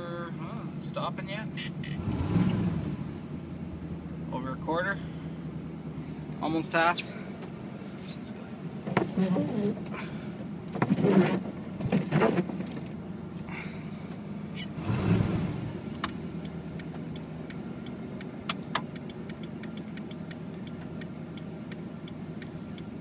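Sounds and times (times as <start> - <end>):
pickup engine idling: 0.0 - 10.8, 12.4 - 23.0
turn signal clicking: 15.4 - 23.0.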